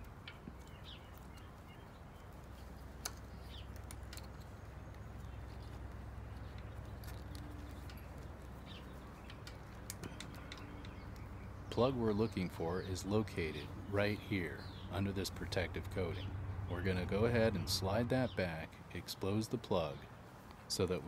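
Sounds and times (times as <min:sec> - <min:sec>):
bird chirps: 0:00.0 - 0:15.3
low steady hum: 0:00.0 - 0:21.0
wires and connectors clicking: 0:02.2 - 0:11.6.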